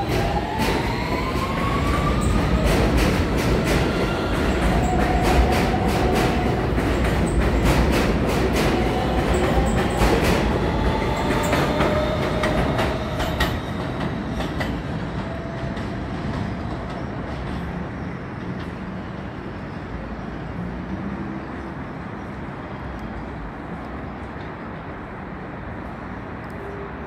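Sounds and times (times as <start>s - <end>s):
train wheels clacking over rail joints: 0.0s - 17.7s.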